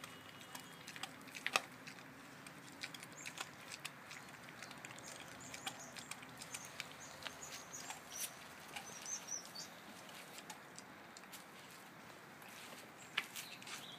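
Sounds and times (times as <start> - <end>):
dog teeth crunching on bone: 0.0 - 9.2.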